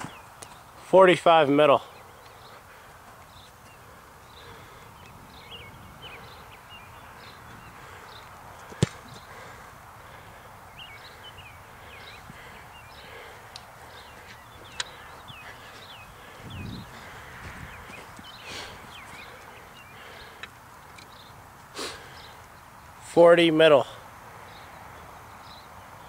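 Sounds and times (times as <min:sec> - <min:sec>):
birds chirping: 0:00.0 - 0:26.0
outdoor background: 0:00.0 - 0:26.0
football kick thud: 0:08.8 - 0:09.2.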